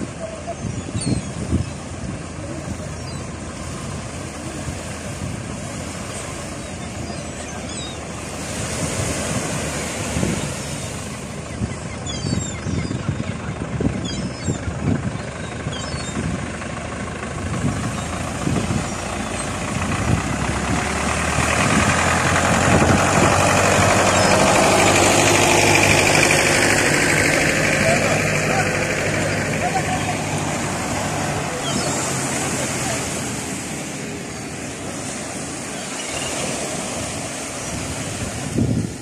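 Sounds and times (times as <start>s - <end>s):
gulls calling: 0.0s - 38.6s
tractor engine chugging: 13.5s - 31.3s.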